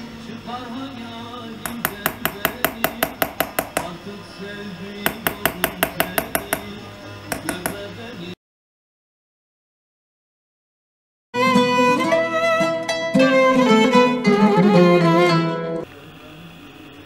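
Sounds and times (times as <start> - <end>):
hammer tapping steel punch: 1.6 - 4.0, 5.0 - 7.8
background music: 11.4 - 15.9.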